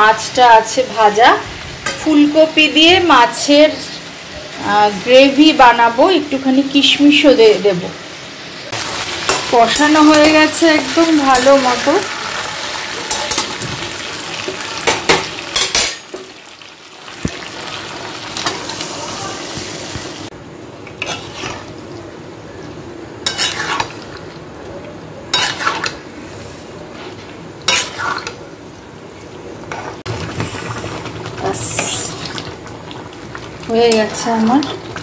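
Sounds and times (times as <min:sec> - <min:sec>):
food sizzling in a pan: 0:00.0 - 0:24.6, 0:25.2 - 0:26.6, 0:27.5 - 0:28.7, 0:29.6 - 0:35.0
metal spatula scraping a pan: 0:21.0 - 0:21.7, 0:23.2 - 0:24.0, 0:25.3 - 0:26.0, 0:27.7 - 0:28.4.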